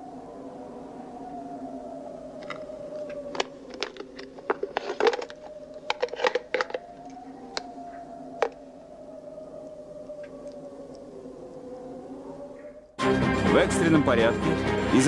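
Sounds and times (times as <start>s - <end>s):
wavering hum: 0.0s - 13.0s
clicks and knocks of handling: 2.4s - 7.7s.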